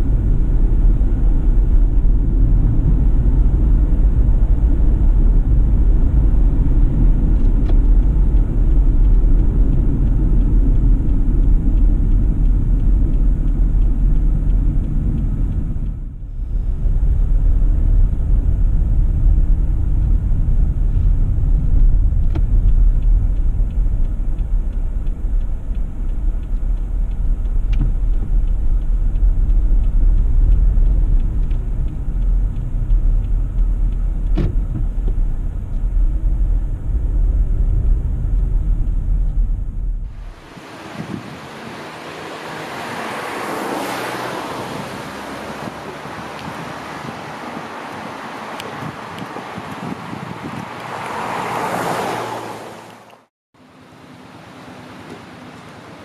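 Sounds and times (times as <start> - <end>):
tyre and engine rumble: 0.0 - 53.7
faint ticks: 22.2 - 34.4.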